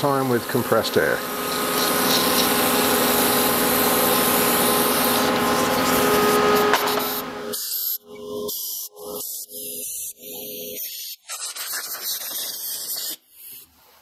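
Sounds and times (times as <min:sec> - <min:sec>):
aerosol and air gun hissing: 0:00.0 - 0:08.9.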